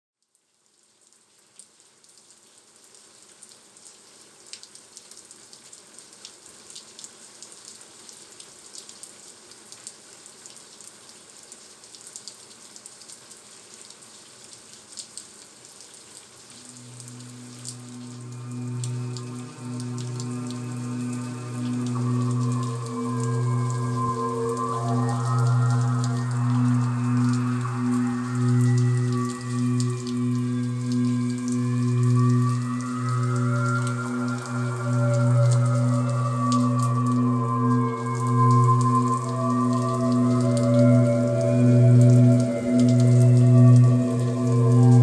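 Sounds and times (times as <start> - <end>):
water dripping and trickling: 0.2 - 45.0
low synthesizer chord: 16.7 - 45.0.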